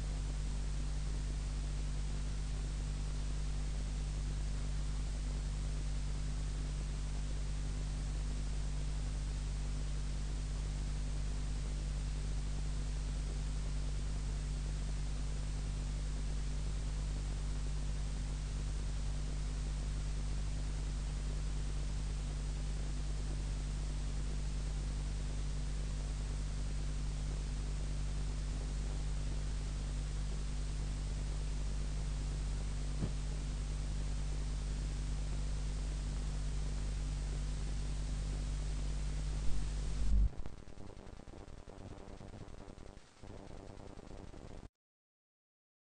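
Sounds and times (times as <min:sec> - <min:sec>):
low electrical hum: 0:00.0 - 0:44.7
low hum: 0:26.7 - 0:44.6.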